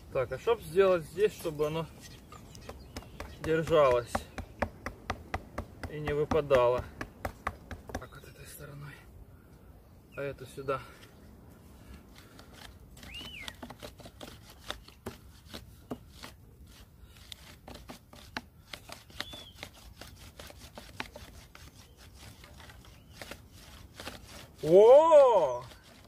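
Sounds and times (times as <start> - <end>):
bow drill wooden clicks and rubbing: 1.3 - 5.1, 11.9 - 24.6.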